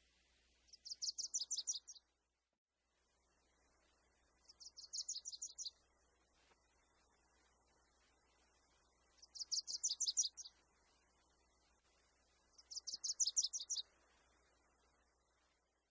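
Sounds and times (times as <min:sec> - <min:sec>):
songbird trilling: 0:00.8 - 0:02.0, 0:04.5 - 0:05.8, 0:09.2 - 0:10.5, 0:12.6 - 0:13.8.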